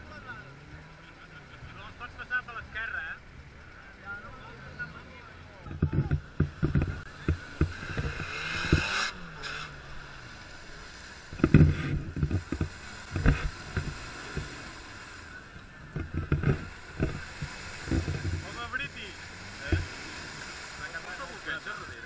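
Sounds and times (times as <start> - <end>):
engine working under load: 0.0 - 22.0
low thumps: 5.6 - 9.3, 11.2 - 14.7, 15.8 - 19.0.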